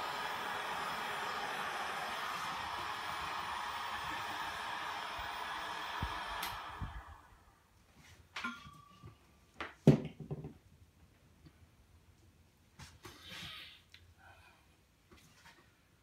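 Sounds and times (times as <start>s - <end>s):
hot-air blower running: 0.0s - 7.6s.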